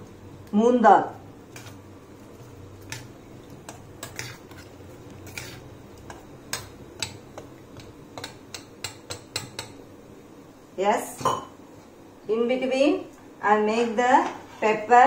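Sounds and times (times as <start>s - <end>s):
spoon scraping steel bowl: 3.7s - 6.2s.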